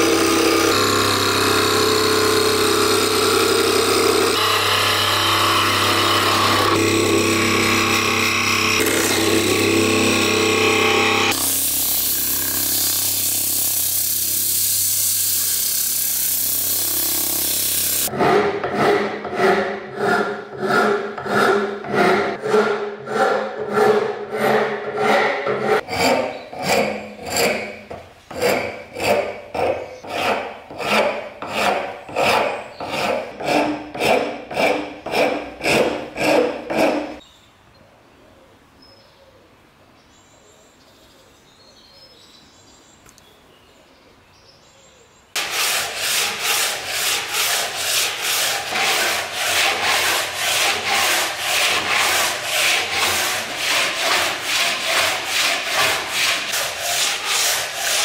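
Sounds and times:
file rasping on wood: 0.0s - 11.5s, 16.8s - 37.2s, 45.4s - 58.0s
wood lathe hissing: 0.0s - 18.1s, 45.4s - 58.0s.

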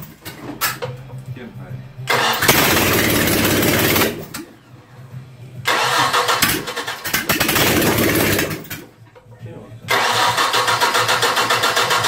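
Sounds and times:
engine cranking: 2.1s - 4.5s, 5.7s - 8.9s, 9.9s - 12.0s.

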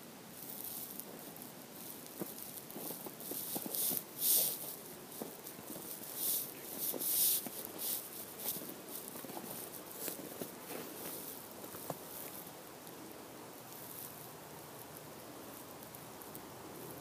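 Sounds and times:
footsteps crunching in snow: 0.4s - 12.8s.

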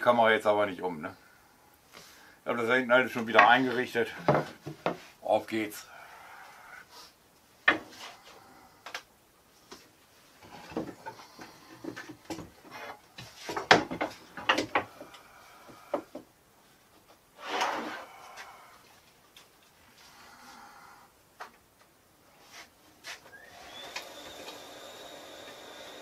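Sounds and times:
knocks of wooden workpieces: 4.2s - 5.0s, 7.6s - 7.9s, 10.5s - 15.1s
scraping of wood on workbench: 17.4s - 18.1s.

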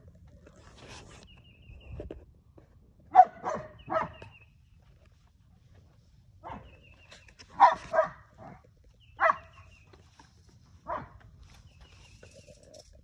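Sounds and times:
dog barking: 3.1s - 4.2s, 6.4s - 6.7s, 7.6s - 8.6s, 9.2s - 9.5s, 10.8s - 11.2s.

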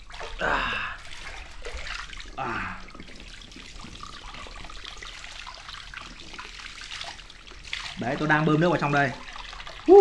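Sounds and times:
hose water splashing into pool: 0.0s - 10.0s.

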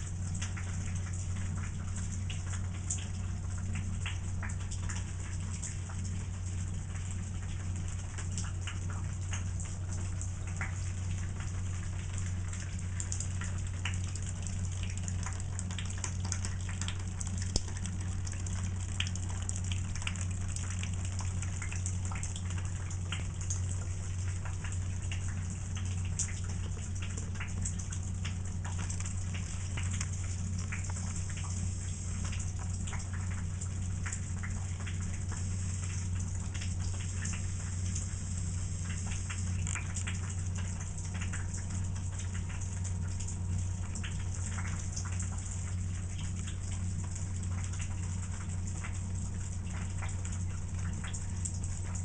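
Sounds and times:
steady low hum: 0.0s - 52.0s
water dripping into wastebasket: 0.0s - 52.0s
thin stream of water falling: 13.2s - 41.5s.

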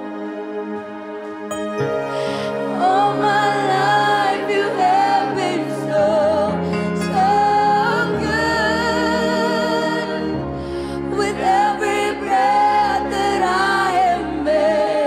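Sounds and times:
keyboard chords: 0.0s - 15.0s
band playing: 1.3s - 5.2s
other singers: 1.9s - 15.0s
woman singing: 2.6s - 10.3s, 11.0s - 15.0s.

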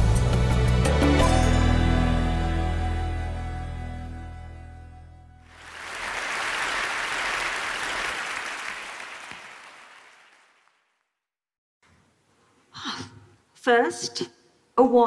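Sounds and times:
audience applauding: 5.5s - 10.9s.

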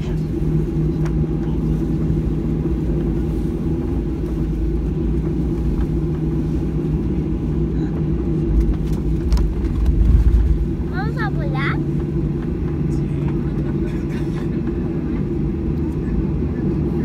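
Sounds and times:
airplane cabin engine rumble: 0.0s - 17.0s.

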